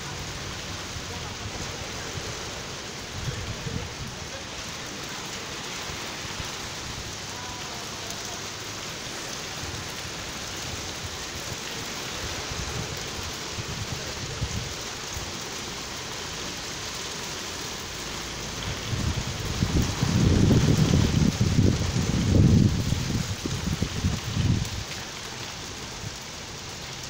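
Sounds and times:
hail and snow falling: 0.0s - 27.0s.

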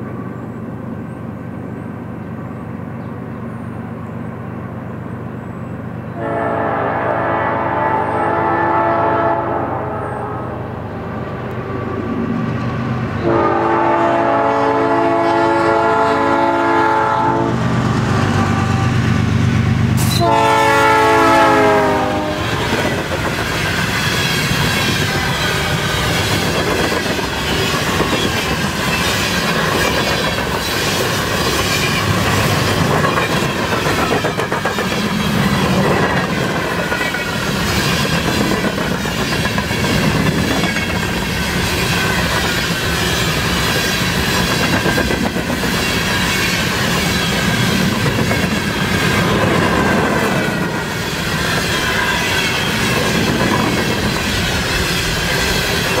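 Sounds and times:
train cars rolling by: 0.0s - 56.0s
locomotive air horn: 6.2s - 10.7s, 13.2s - 17.6s, 18.2s - 19.0s, 20.0s - 22.6s
wheels clicking over rail joints: 22.6s - 56.0s.

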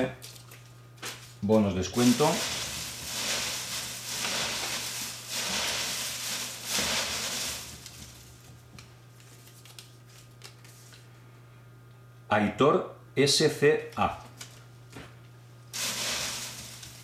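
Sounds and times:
paper strips rustling: 2.0s - 8.4s, 9.2s - 11.0s
paper slip crinkling: 9.2s - 11.0s.

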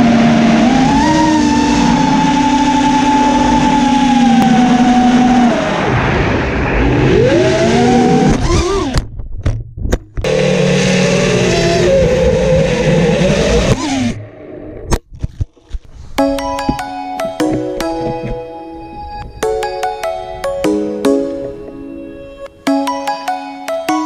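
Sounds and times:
drone motors whining: 0.0s - 9.1s, 10.2s - 14.9s
wind rushing: 1.0s - 8.9s.

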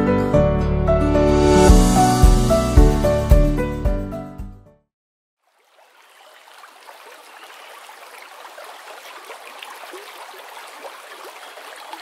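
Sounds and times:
water rushing and gurgling: 5.4s - 12.0s.

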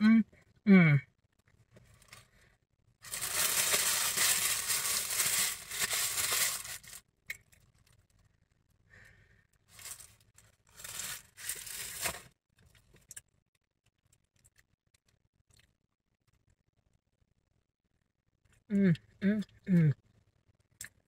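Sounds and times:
paper wrapper crinkling: 3.0s - 7.0s, 9.7s - 12.8s.

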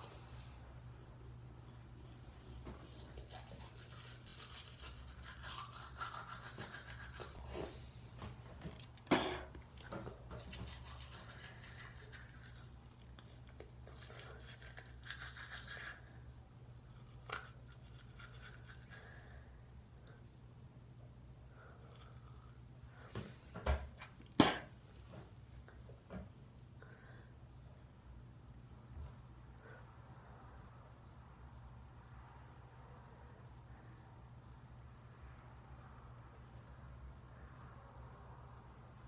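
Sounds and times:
toothbrush scrubbing teeth: 2.0s - 7.6s, 10.1s - 16.2s, 16.9s - 19.3s.

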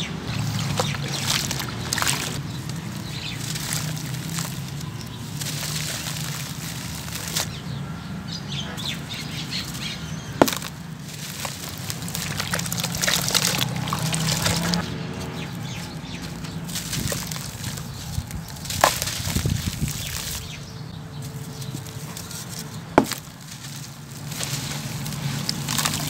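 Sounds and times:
gritty crunching by hand: 0.0s - 26.0s
bits splashing into water: 0.3s - 7.6s, 9.6s - 14.8s.

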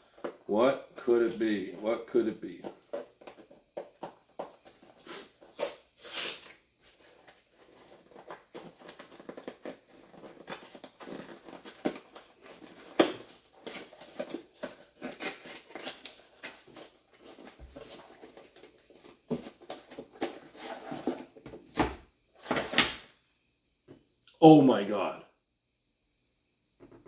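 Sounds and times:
packaging rustling and crinkling: 2.5s - 21.4s.

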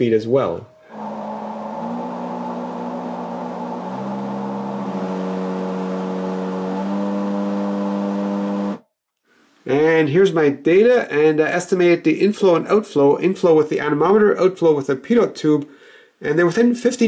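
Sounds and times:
motor whirring: 0.8s - 8.8s.

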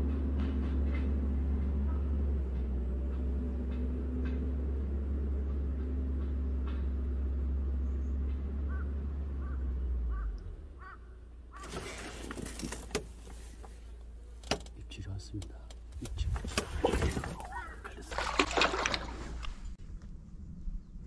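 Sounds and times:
bird calls: 1.3s - 3.8s, 5.3s - 12.3s, 16.8s - 18.0s
crackling rustling noise: 11.6s - 14.0s
wind buffeting microphone: 15.9s - 17.7s.

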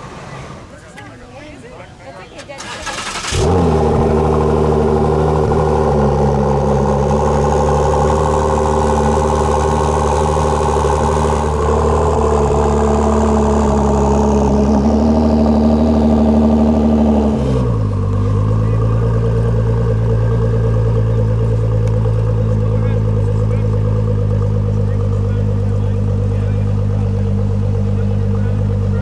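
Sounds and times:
car engine idling loudly: 2.6s - 29.0s.

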